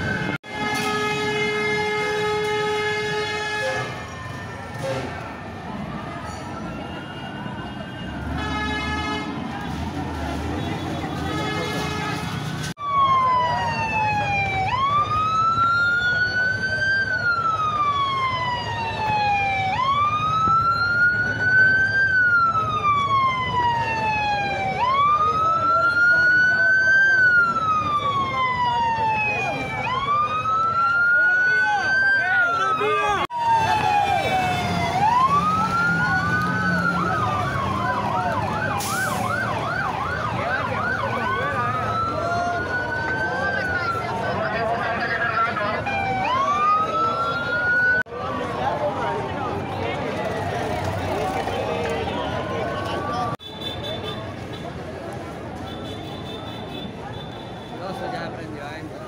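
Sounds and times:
police siren wailing: 0:00.0 - 0:53.4
street noise rumble: 0:00.0 - 0:59.0
vehicle engine rumbling: 0:33.6 - 0:57.6.

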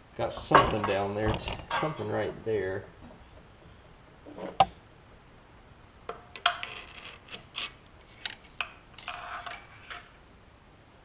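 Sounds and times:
metal clinks and scrapes: 0:06.5 - 0:10.2.

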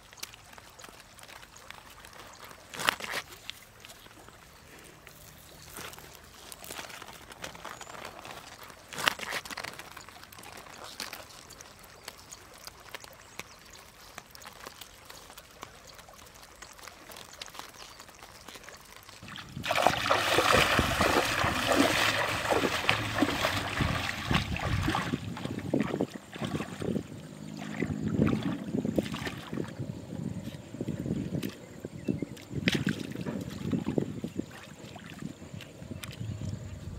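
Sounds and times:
faint clicks and rustles: 0:00.0 - 0:19.4
river water splashing: 0:00.0 - 0:36.2.

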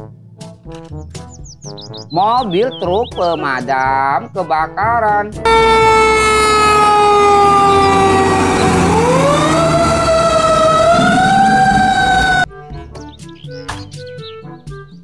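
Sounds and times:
fire truck siren wailing: 0:05.5 - 0:12.5
low engine rumble: 0:05.5 - 0:12.5.

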